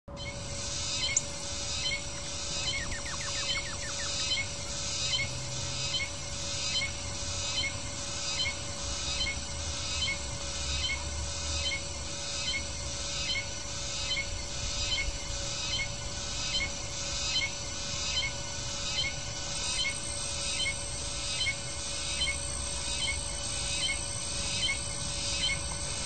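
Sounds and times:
bird trill: 0.1s - 10.2s, 17.3s - 26.0s
steady hum: 0.1s - 26.0s
pulsing hiss: 0.3s - 26.0s.

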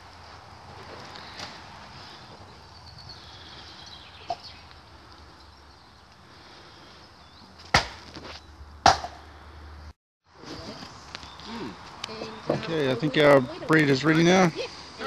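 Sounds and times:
axe chopping wood: 7.6s - 9.2s.

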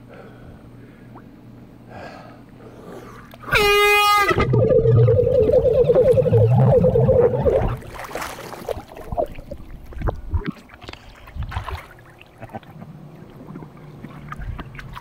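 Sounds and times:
air horn muffled underwater: 3.4s - 7.9s
water splashing and sloshing: 4.3s - 15.0s.

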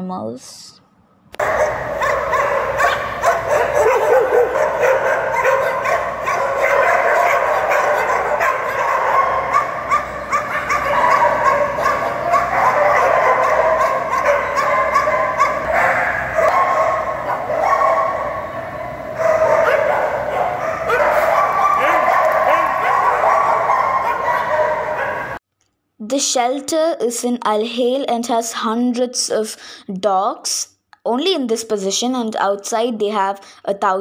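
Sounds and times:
many dogs barking and yipping: 1.4s - 25.4s.

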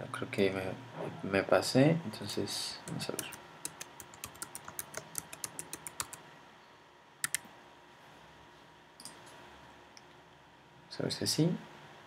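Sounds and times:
computer keyboard typing: 2.9s - 6.2s, 7.2s - 7.4s.

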